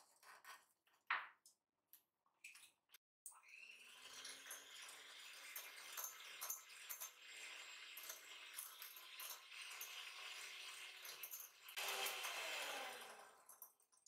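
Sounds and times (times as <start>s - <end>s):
electric hand mixer whirring: 11.8s - 13.5s.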